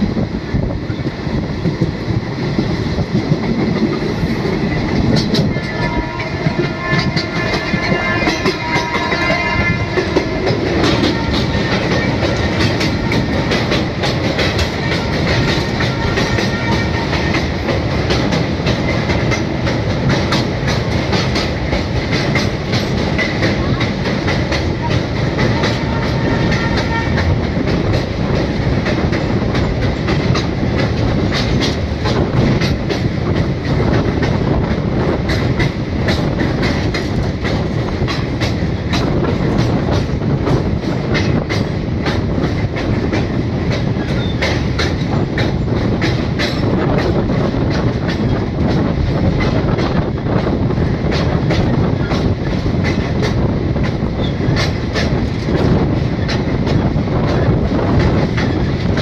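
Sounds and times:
train wheels rumbling on rails: 0.0s - 59.0s.

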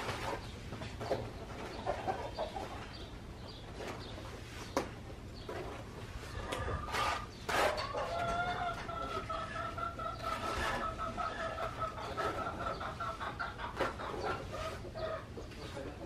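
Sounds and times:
chicken clucking: 0.1s - 4.8s, 5.4s - 16.0s
trowel scraping wet cement: 6.8s - 8.2s, 10.2s - 10.9s.

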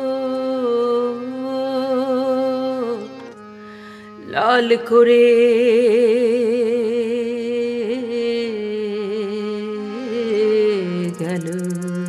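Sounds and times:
harmonium drone: 0.0s - 12.0s.

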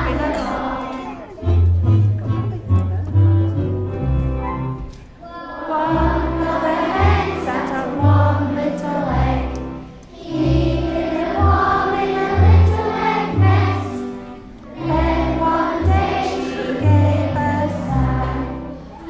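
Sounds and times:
children singing together: 0.0s - 1.4s, 5.2s - 19.0s
musical accompaniment with bass line: 1.3s - 5.0s.

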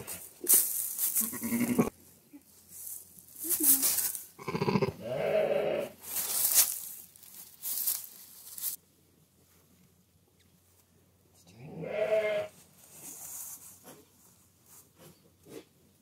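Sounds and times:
straw and wool rustling: 0.0s - 11.1s, 12.1s - 15.7s
sheep bleating: 1.2s - 1.9s, 4.4s - 6.0s, 11.6s - 12.5s.

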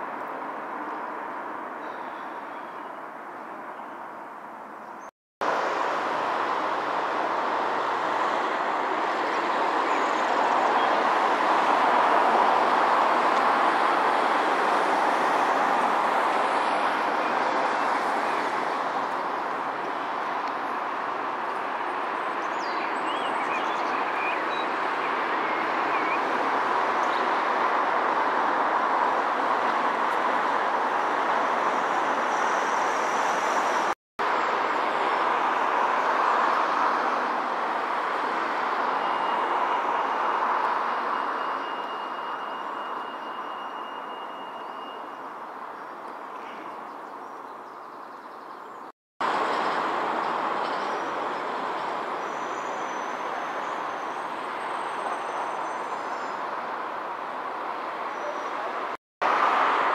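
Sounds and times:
traffic hiss: 5.4s - 47.0s.

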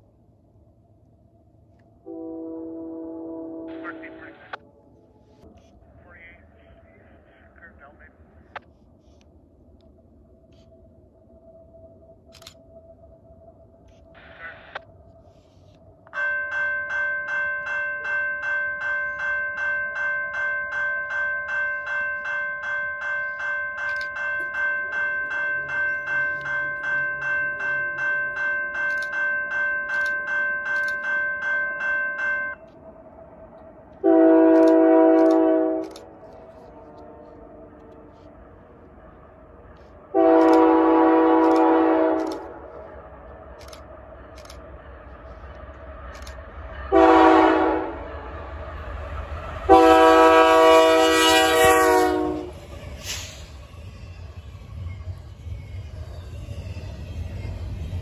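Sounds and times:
locomotive air horn blast: 2.0s - 4.4s, 34.0s - 35.9s, 40.1s - 42.6s, 46.9s - 48.1s, 49.7s - 53.3s
level crossing warning bell: 16.1s - 32.9s.

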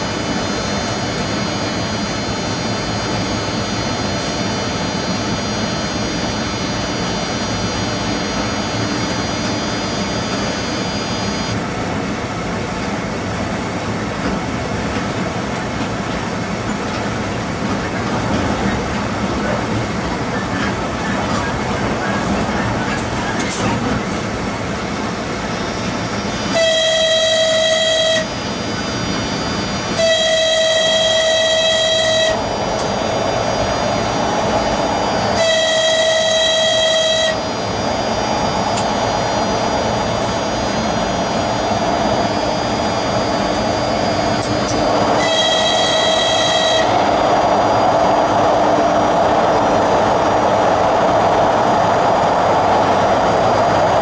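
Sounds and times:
train running on rails: 0.0s - 54.0s
train horn: 26.5s - 28.4s, 29.9s - 32.6s, 35.3s - 37.5s, 44.4s - 47.6s.

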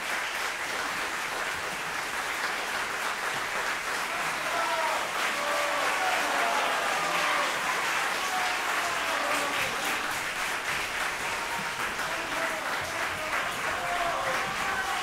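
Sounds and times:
audience applauding: 0.0s - 15.0s
voices in crowd: 4.0s - 15.0s.

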